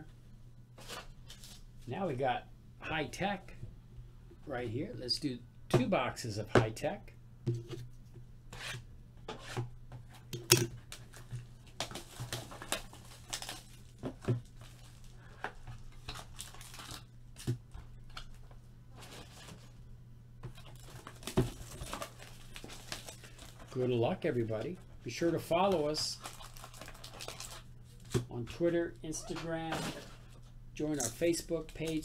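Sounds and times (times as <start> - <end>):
plastic wrap tearing and crinkling: 10.9 - 15.2, 15.8 - 17.1, 20.6 - 23.7, 26.2 - 28.1.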